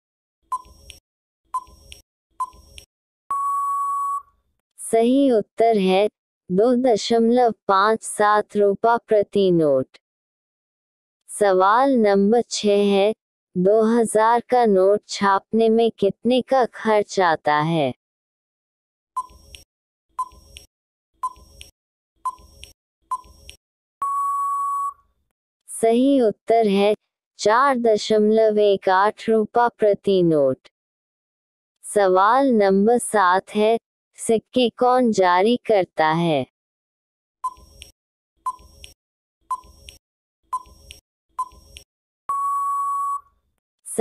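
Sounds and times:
short sharp beeps: 3.3s - 4.3s, 24.0s - 25.0s, 42.3s - 43.3s.

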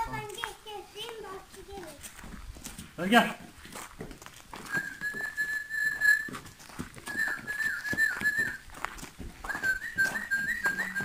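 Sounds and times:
footsteps on dirt: 0.0s - 11.0s
person whistling high note: 4.7s - 8.6s, 9.4s - 11.0s.

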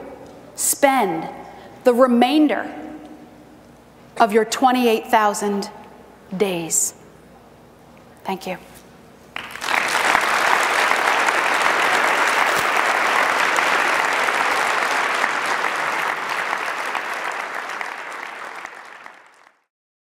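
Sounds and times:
audience applauding: 9.4s - 19.7s.

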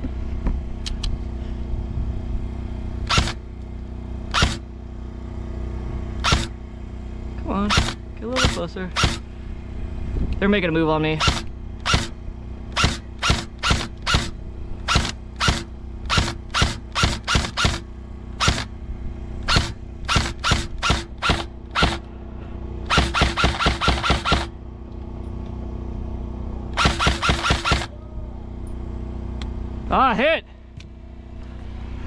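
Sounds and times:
airsoft rifle firing: 6.2s - 6.6s, 19.5s - 22.0s, 22.9s - 24.5s, 26.8s - 27.9s.

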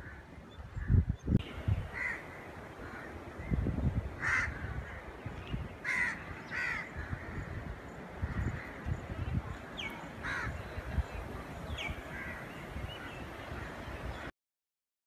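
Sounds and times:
wind gusts on microphone: 0.0s - 14.3s
crows cawing: 2.0s - 3.5s, 4.2s - 5.1s, 5.8s - 8.8s, 10.2s - 10.6s, 12.1s - 13.8s.

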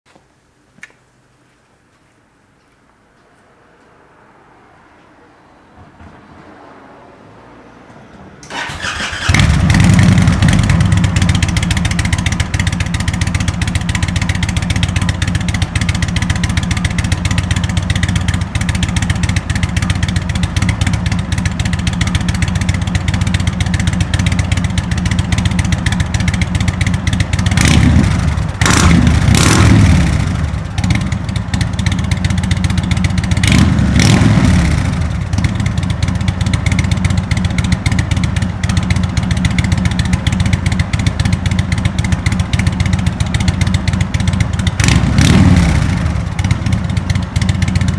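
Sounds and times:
motorcycle engine starting and idling: 5.7s - 47.9s.

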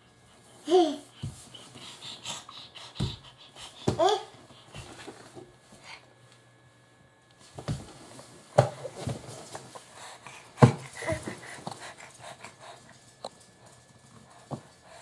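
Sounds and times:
baby panting excitedly: 0.5s - 5.1s, 9.9s - 12.9s.

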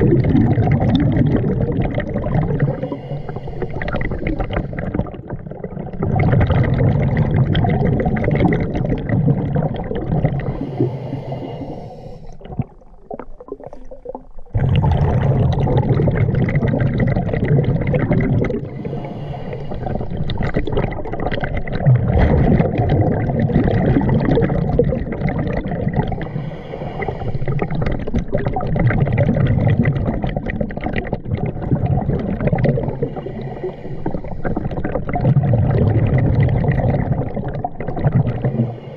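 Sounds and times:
exhaled bubbles underwater: 0.0s - 38.9s.

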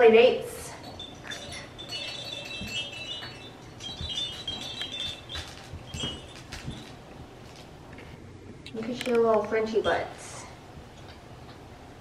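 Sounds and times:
toy rattle jingling: 0.7s - 7.1s.

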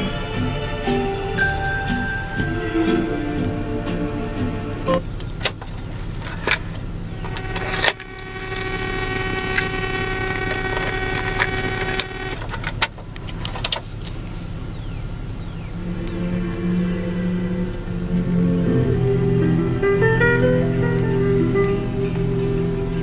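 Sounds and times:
music from cassette: 0.0s - 13.8s, 15.8s - 23.0s
steady low hum: 0.0s - 23.0s
cassette deck clicks and clunks: 4.9s - 14.2s.

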